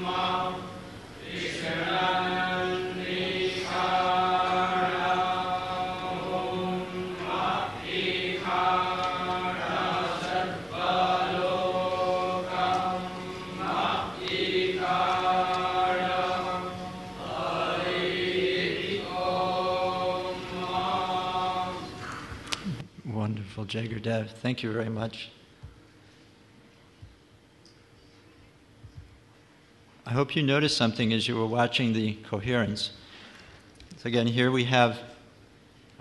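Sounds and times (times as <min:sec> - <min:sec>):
men chanting: 0:00.0 - 0:22.0
steady low hum: 0:00.0 - 0:36.0.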